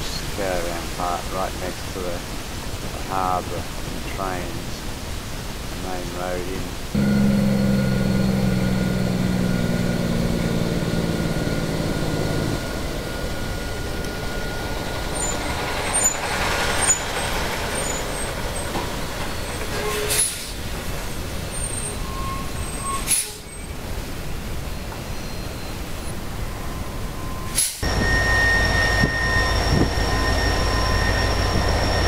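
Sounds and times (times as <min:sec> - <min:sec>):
rumble of tyres and trailer: 0:00.0 - 0:32.0
diesel truck engine: 0:05.8 - 0:32.0.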